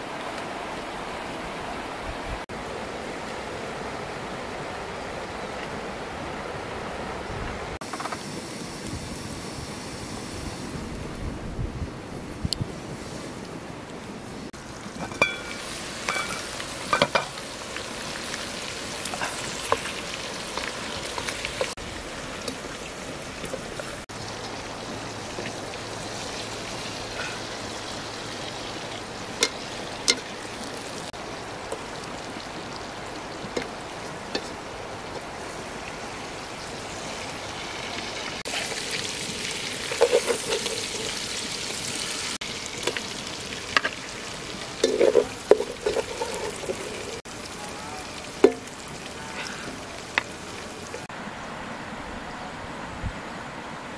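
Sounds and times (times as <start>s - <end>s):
frying sizzle in metal pot: 14.6s - 51.1s
spatula scraping metal pot: 39.9s - 41.2s, 44.8s - 47.2s.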